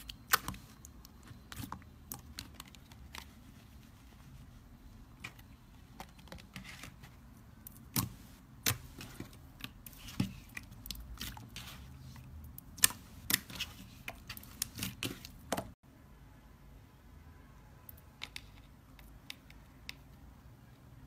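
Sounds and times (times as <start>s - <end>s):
fingers squishing slime: 0.0s - 3.9s, 7.5s - 15.8s.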